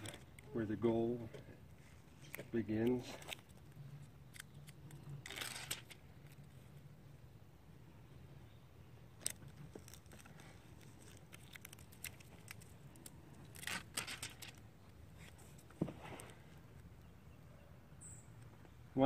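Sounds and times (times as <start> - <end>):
velcro strips peeled: 3.1 - 6.5, 9.2 - 15.4
light clicks and rustles: 9.2 - 17.0.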